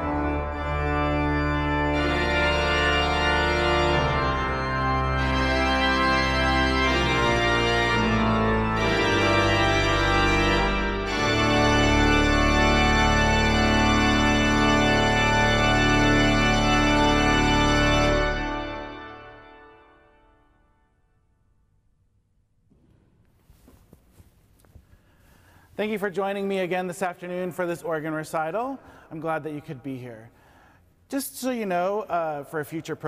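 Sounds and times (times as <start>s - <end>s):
pipe organ chords: 0.0s - 21.3s.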